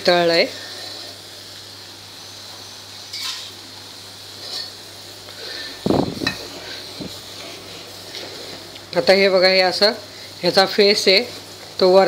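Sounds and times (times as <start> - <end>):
butter hissing: 0.0 - 12.0
ladle scraping metal pot: 5.6 - 8.6.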